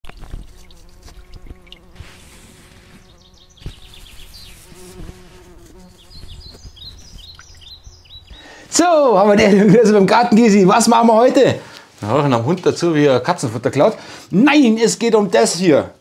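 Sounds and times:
flying insect buzzing: 0.2 - 7.3
short bird chirps: 2.9 - 5.0, 5.9 - 8.6.

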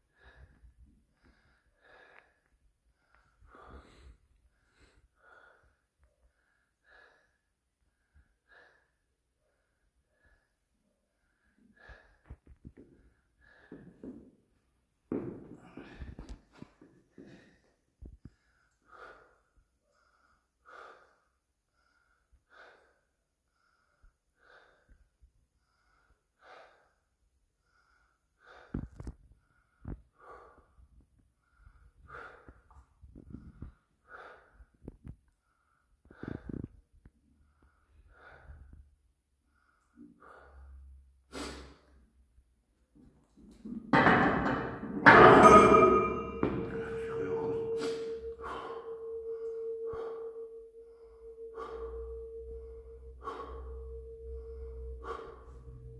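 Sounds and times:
metal barbell clattering: 43.9 - 50.5
metallic ringing: 44.0 - 55.9
man breathing sharply: 47.2 - 55.9.

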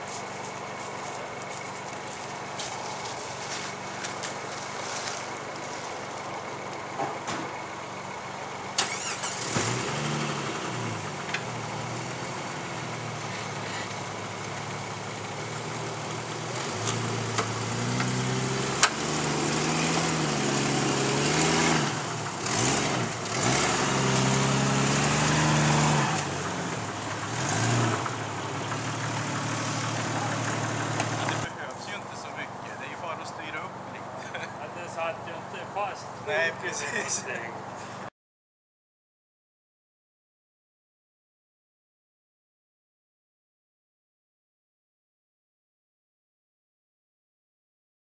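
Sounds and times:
engine revving: 8.7 - 37.4.

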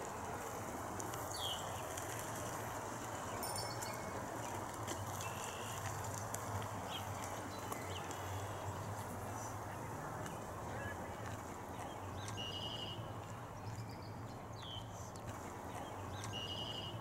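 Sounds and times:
small birds calling: 1.2 - 2.3, 4.9 - 11.0, 11.7 - 17.0.

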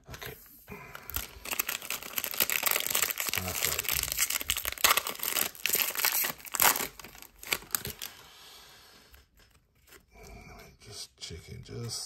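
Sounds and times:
card pack wrapper crinkling and tearing: 0.8 - 8.2.

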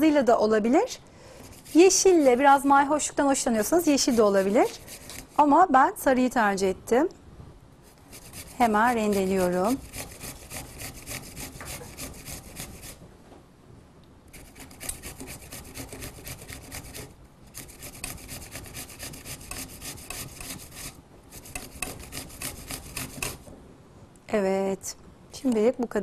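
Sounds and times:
apple grated on grater: 1.4 - 5.5, 7.9 - 13.0, 14.3 - 23.5.

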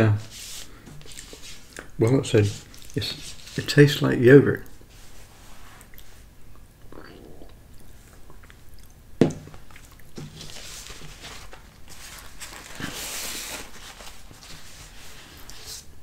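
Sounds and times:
paper napkin rustling: 0.0 - 4.0, 10.2 - 16.0
mouth sounds of eating: 5.8 - 9.1.

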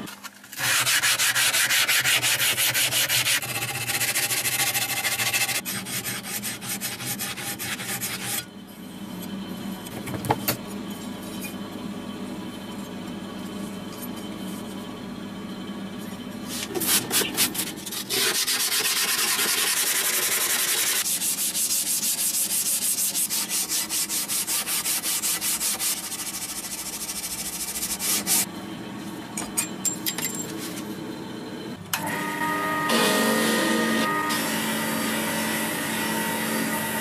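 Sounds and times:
sanding steel blade by hand: 0.6 - 8.4, 16.5 - 28.5.

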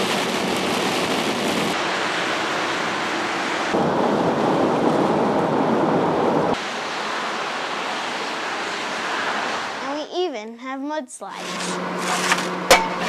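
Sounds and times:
heavy rain: 0.0 - 10.1
traffic hissing through water: 0.0 - 12.7.

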